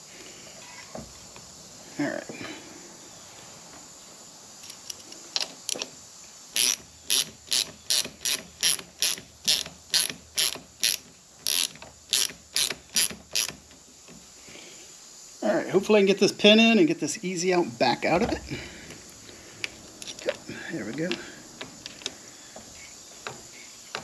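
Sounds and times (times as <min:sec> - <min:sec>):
socket ratchet clicking: 0:06.6 - 0:13.6.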